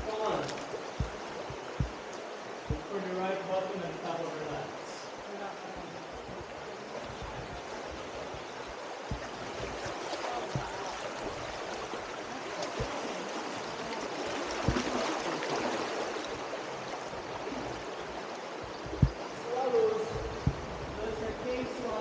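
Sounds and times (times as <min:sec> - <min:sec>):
river water rushing: 0:00.0 - 0:22.0
short low thumps: 0:00.9 - 0:02.9, 0:06.1 - 0:11.6, 0:18.6 - 0:21.2.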